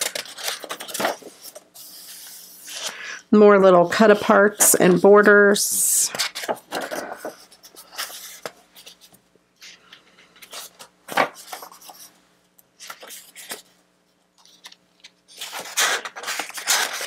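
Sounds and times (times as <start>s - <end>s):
paper crackle: 0.0s - 3.1s, 6.1s - 12.2s, 12.8s - 13.7s, 14.4s - 17.0s
paper pages rustling: 0.0s - 3.1s, 6.1s - 12.2s, 12.8s - 13.7s, 14.4s - 17.0s.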